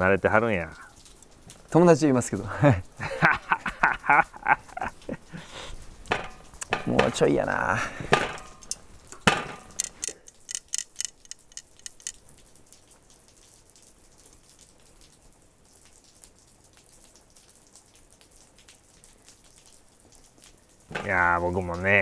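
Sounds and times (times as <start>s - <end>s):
faint hiss: 0.0s - 9.2s.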